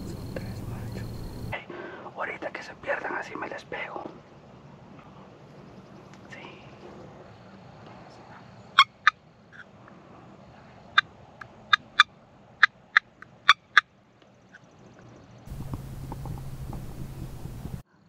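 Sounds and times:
turkey calling: 0:00.0 - 0:01.6, 0:08.8 - 0:09.6, 0:11.7 - 0:13.9.

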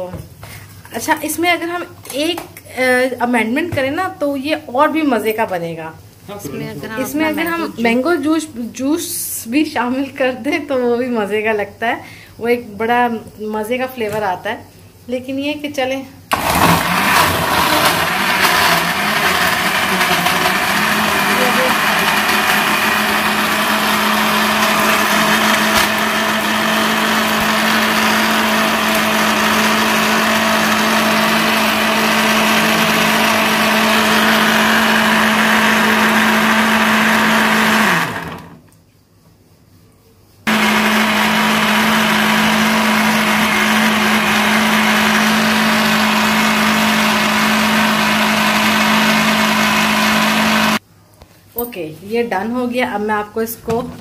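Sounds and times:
blender motor winding down: 0:16.3 - 0:38.6, 0:40.5 - 0:50.8
blender running: 0:16.3 - 0:38.6, 0:40.5 - 0:50.8.

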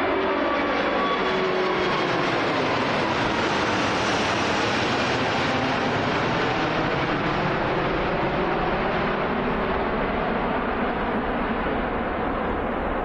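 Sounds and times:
jet engines at takeoff: 0:00.0 - 0:13.0.

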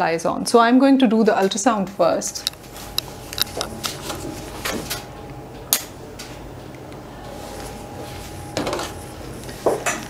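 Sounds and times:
steady low hum: 0:01.8 - 0:10.0.

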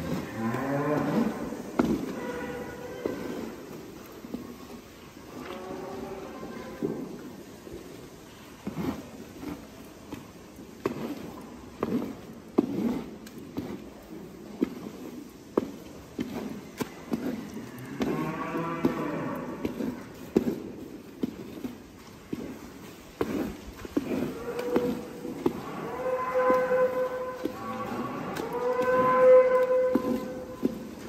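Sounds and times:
cow mooing: 0:00.1 - 0:01.5, 0:17.6 - 0:19.7, 0:24.3 - 0:30.8.

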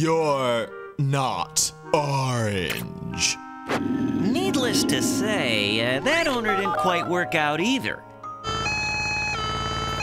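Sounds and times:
cartoon two-tone siren: 0:08.4 - 0:10.0.

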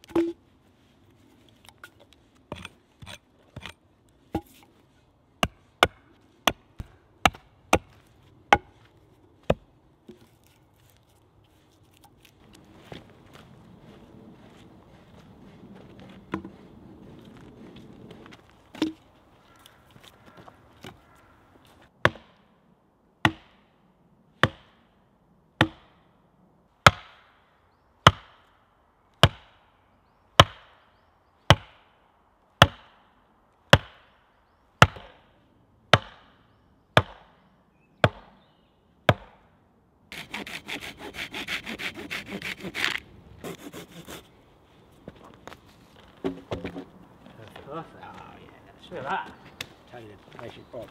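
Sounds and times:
axe driving wooden stake: 0:01.7 - 0:04.6, 0:22.0 - 0:22.4, 0:23.3 - 0:23.6, 0:33.8 - 0:34.0, 0:34.8 - 0:35.2, 0:36.0 - 0:36.4, 0:39.1 - 0:39.4
fast rasping on wood: 0:40.2 - 0:44.2.

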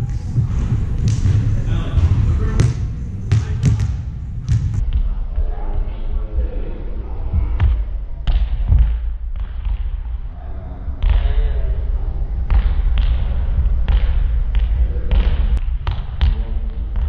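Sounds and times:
volleyballs smacking and bouncing: 0:00.0 - 0:05.1, 0:07.6 - 0:10.2
voices: 0:00.0 - 0:08.2.

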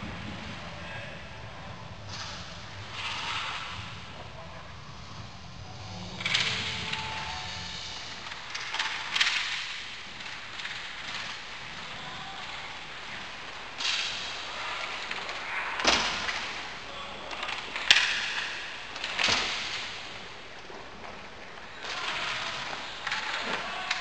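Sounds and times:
steady rink hiss: 0:02.2 - 0:15.5
hockey sticks and puck clacking: 0:06.2 - 0:24.0.

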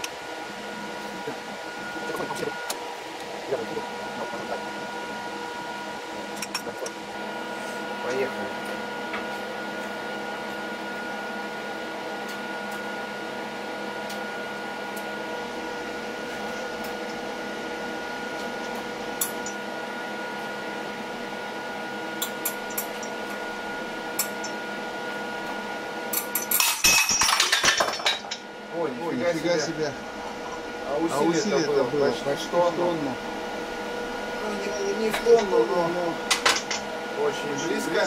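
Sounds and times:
hydraulic press machine hum: 0:00.0 - 0:38.0.

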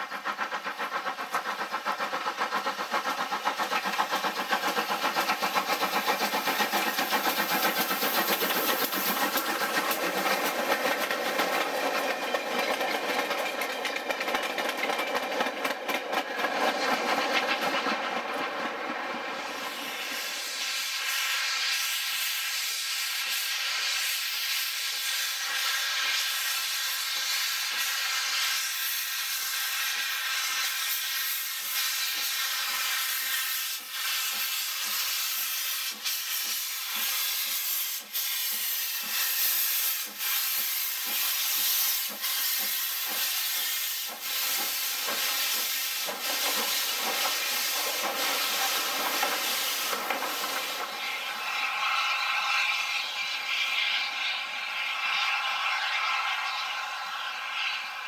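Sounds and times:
loud hiss of steam: 0:00.0 - 0:58.0
steam locomotive exhaust beats: 0:00.0 - 0:58.0.

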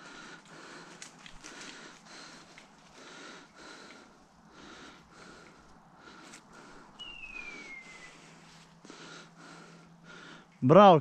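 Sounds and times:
faint rhythmic breathing: 0:00.0 - 0:10.8
rustling in dry leaves: 0:06.2 - 0:08.9.

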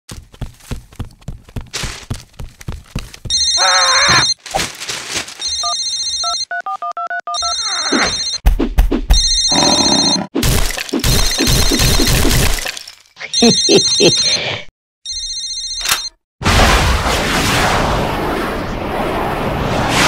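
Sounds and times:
phone ringing trill: 0:03.3 - 0:04.4, 0:05.4 - 0:08.4, 0:09.2 - 0:10.3, 0:13.3 - 0:14.4, 0:15.1 - 0:16.2
beeping tones: 0:05.4 - 0:08.4, 0:09.1 - 0:10.3, 0:11.0 - 0:12.3, 0:13.3 - 0:14.5.

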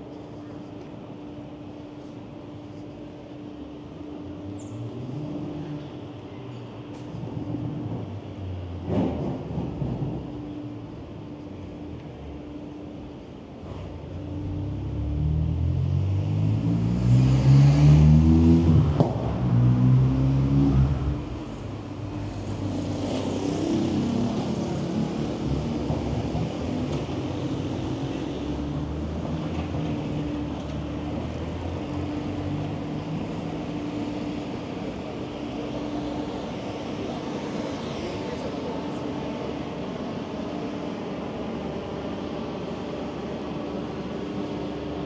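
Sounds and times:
street traffic: 0:00.0 - 0:45.0
vehicle engine accelerating: 0:14.4 - 0:21.4.

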